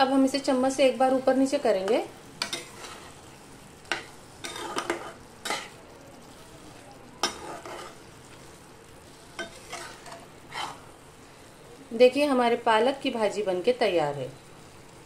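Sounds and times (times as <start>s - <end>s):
faint sizzle: 0.0s - 15.0s
spoon scraping frying pan: 1.8s - 11.0s.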